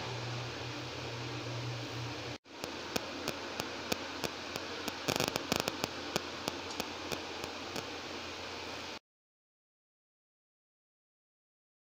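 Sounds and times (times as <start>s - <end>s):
steady hiss: 0.0s - 9.0s
faint regular ticks: 2.6s - 7.9s.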